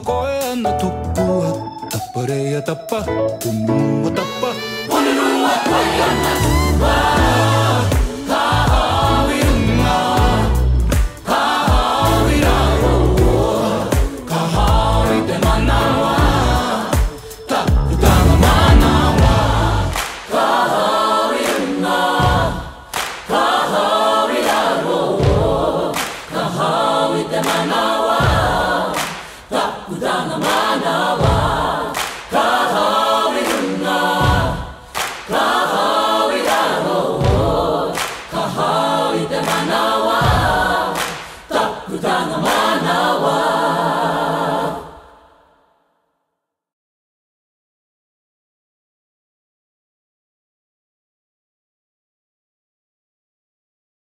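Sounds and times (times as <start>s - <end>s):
group of voices singing and chanting: 0.0s - 45.7s
sharp percussive hits: 5.7s - 14.8s, 15.4s - 20.4s
heavy low thumps: 17.7s - 20.0s.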